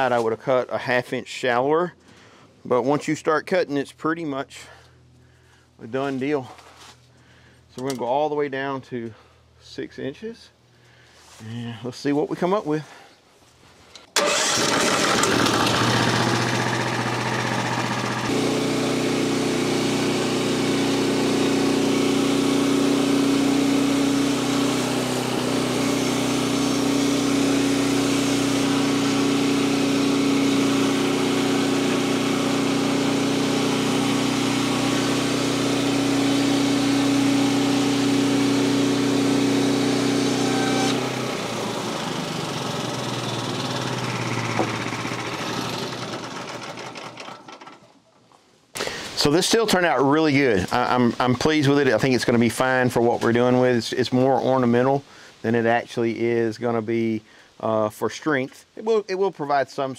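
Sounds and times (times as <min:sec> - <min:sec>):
band sawmill sawing log: 0:14.2 - 0:47.8.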